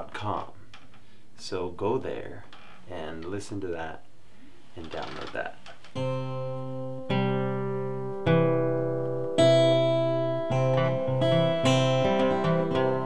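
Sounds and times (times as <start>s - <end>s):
acoustic guitar strumming: 5.9s - 13.0s.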